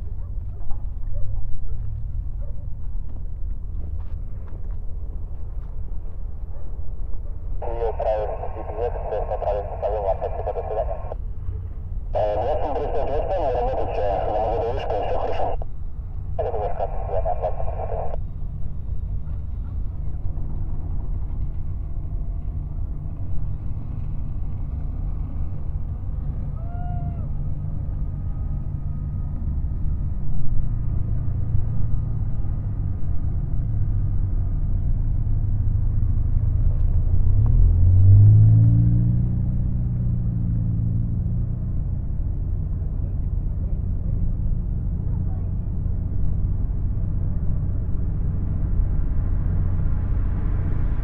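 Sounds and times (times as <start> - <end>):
low engine rumble: 0.0 - 51.0.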